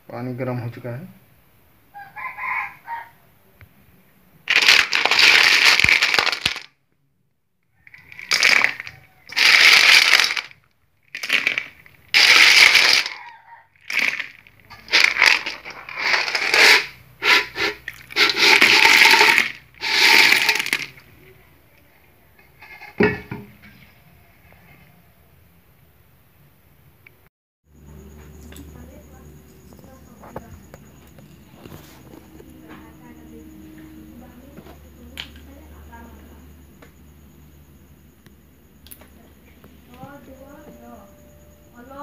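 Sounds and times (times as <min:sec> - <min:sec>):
snail shells clattering in metal wok: 0:04.5 - 0:06.7, 0:08.0 - 0:10.5, 0:11.1 - 0:13.2, 0:13.9 - 0:21.0.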